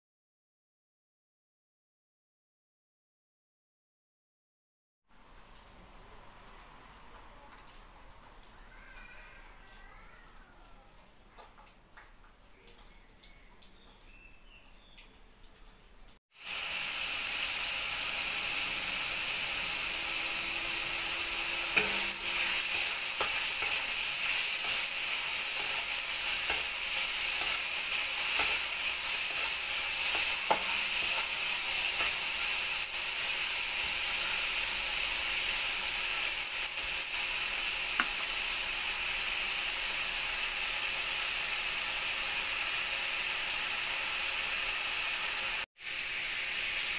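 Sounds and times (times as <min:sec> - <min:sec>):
bacon sizzling in a wok: 0:16.3 - 0:46.9
wooden spatula scraping pan: 0:20.1 - 0:32.2.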